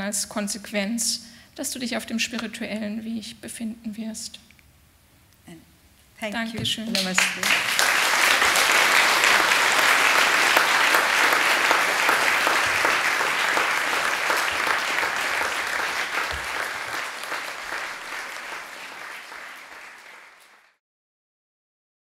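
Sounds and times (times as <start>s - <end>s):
audience applauding: 6.8s - 20.8s.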